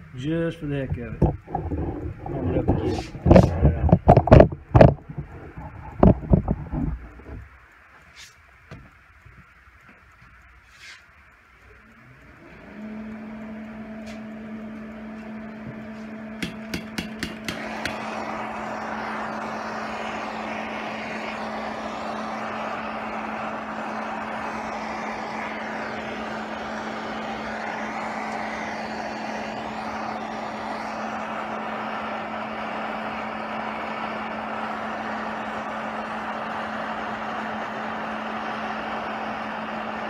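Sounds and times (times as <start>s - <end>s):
steady hum: 0.0s - 40.0s
torch flame rushing: 1.1s - 7.6s
propane torch igniter clicking: 16.4s - 18.1s.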